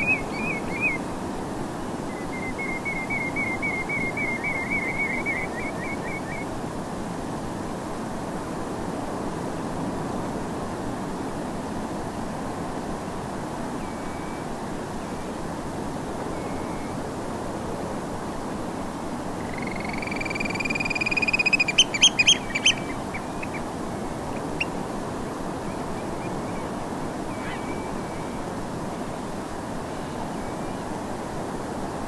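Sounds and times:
oystercatchers piping: 0:00.0 - 0:01.0, 0:02.1 - 0:06.5, 0:19.4 - 0:24.8
distant gentle surf: 0:00.0 - 0:32.0.

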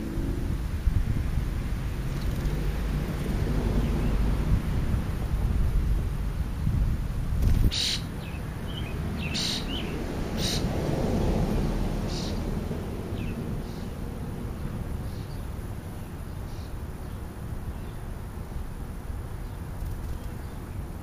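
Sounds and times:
low outdoor rumble: 0:00.0 - 0:21.0
sparrows chirping: 0:02.0 - 0:04.5, 0:07.4 - 0:11.3, 0:12.0 - 0:12.5, 0:13.1 - 0:21.0.

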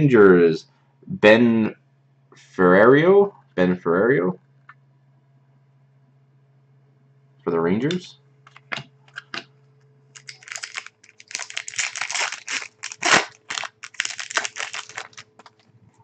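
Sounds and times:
foil wrapper crinkling: 0:10.2 - 0:15.7.

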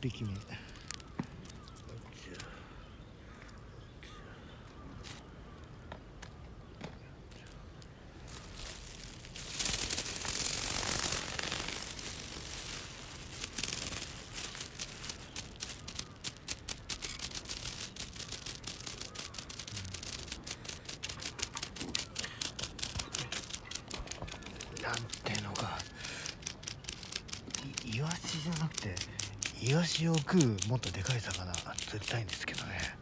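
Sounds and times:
rapid irregular clicks and taps: 0:00.0 - 0:02.5, 0:08.3 - 0:33.0
rustle against microphone: 0:07.0 - 0:33.0.

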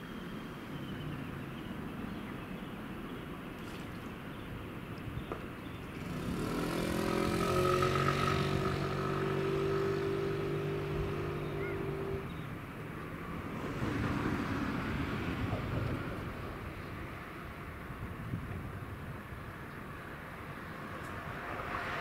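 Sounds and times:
vehicle engine passing by: 0:05.9 - 0:12.5, 0:13.4 - 0:16.4.

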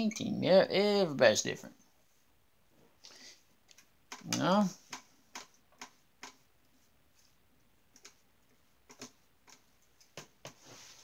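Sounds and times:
faint brush taps and clicks: 0:03.6 - 0:10.7.

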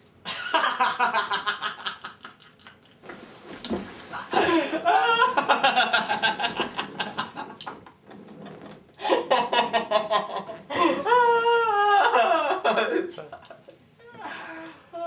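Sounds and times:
boy laughing hard: 0:00.3 - 0:02.8, 0:04.2 - 0:07.6, 0:09.0 - 0:15.0.

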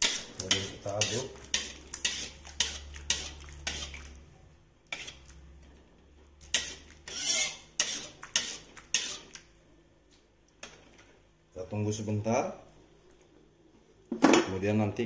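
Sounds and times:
spatula scraping and knocking a wok: 0:00.0 - 0:04.0, 0:04.9 - 0:05.3, 0:06.4 - 0:09.4.

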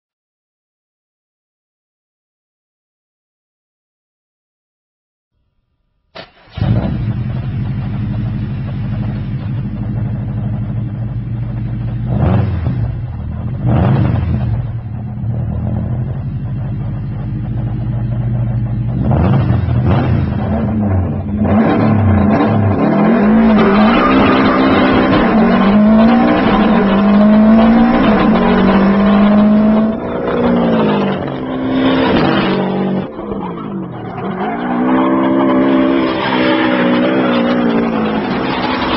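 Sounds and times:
car engine idling and revving: 0:06.2 - 0:38.9.

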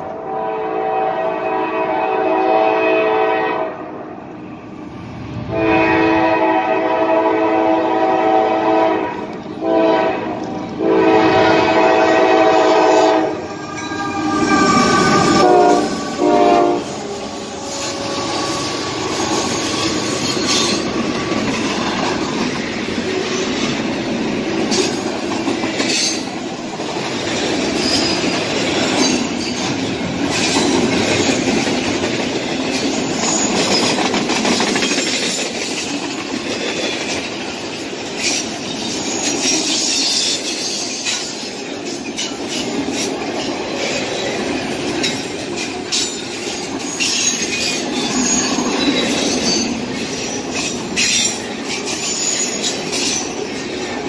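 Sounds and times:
locomotive air horn blasts: 0:00.0 - 0:03.9, 0:05.5 - 0:19.1
train cars rumbling: 0:00.0 - 0:54.0
wheels clacking over rail joints: 0:17.2 - 0:54.0.

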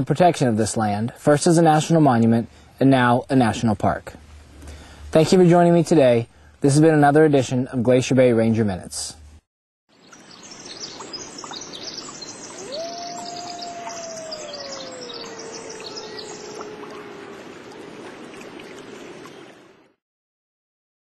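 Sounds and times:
birds chirping and twittering: 0:09.9 - 0:19.6
long low animal call: 0:12.5 - 0:18.4.

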